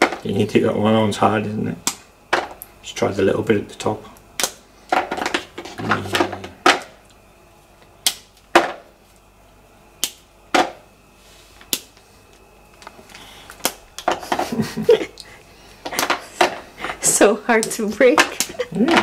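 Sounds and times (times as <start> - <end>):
chocolate snapping: 1.8 - 2.8, 4.2 - 7.2, 7.8 - 9.3, 10.0 - 10.8, 11.6 - 14.2, 17.6 - 19.0.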